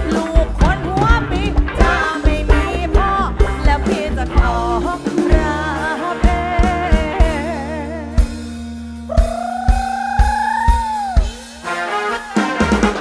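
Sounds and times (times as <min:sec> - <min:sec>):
drum kit hits: 0:00.0 - 0:07.4, 0:10.8 - 0:13.0
woman singing: 0:00.0 - 0:08.4
steady bass: 0:00.0 - 0:10.1
live band music: 0:00.0 - 0:13.0.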